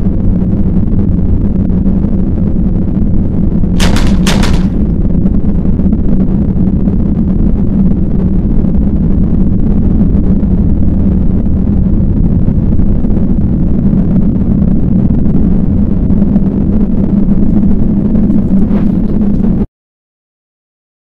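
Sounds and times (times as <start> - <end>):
sharp cracks: 3.8 - 5.0
loud low rumble: 3.8 - 6.3.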